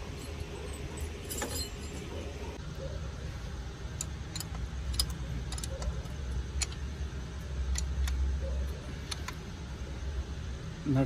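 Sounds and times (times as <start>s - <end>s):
metal tools clinking: 0.0s - 2.6s, 4.0s - 6.8s.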